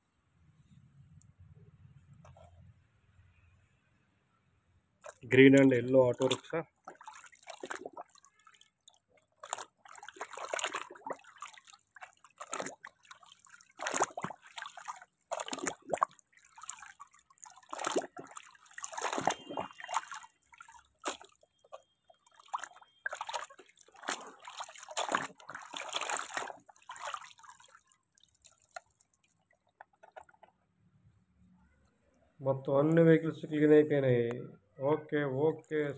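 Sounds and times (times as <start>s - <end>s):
muddy water splashing: 5.0s - 30.4s.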